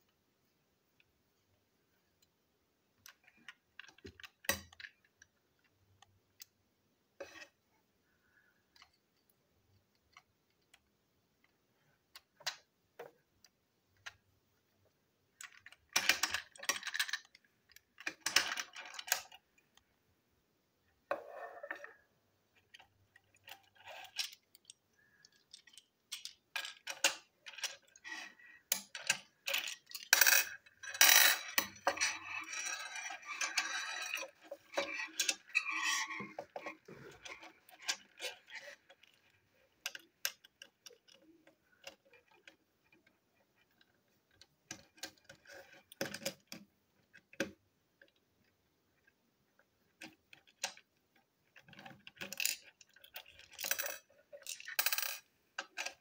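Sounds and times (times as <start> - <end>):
plastic toy clicks and rattles: 3.0 - 5.3, 15.4 - 19.4, 22.7 - 47.5, 51.5 - 56.0.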